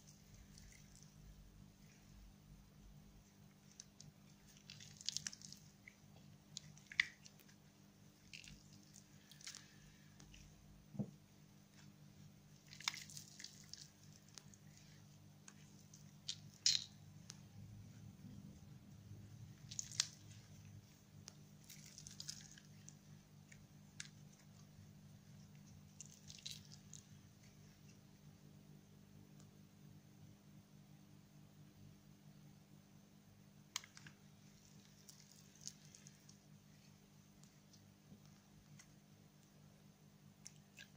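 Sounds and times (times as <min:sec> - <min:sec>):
slime squishing: 0:00.0 - 0:02.3, 0:03.2 - 0:28.0, 0:33.7 - 0:39.0
low steady hum: 0:00.0 - 0:40.9.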